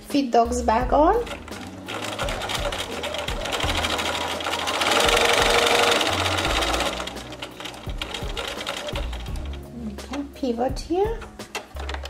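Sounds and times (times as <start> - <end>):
sewing machine stitching: 1.0 - 12.0.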